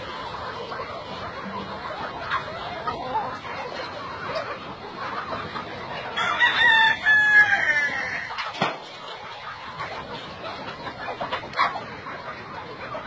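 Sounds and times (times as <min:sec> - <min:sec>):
chickens clucking: 0:00.0 - 0:13.0
rooster crowing: 0:06.2 - 0:08.2.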